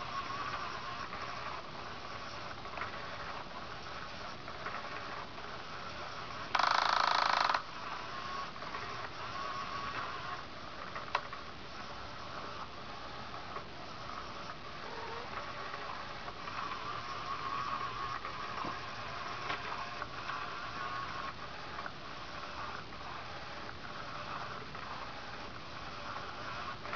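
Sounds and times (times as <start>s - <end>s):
toy motor hissing: 0.0s - 10.5s, 14.3s - 26.9s
loud rasping burst: 6.5s - 8.4s.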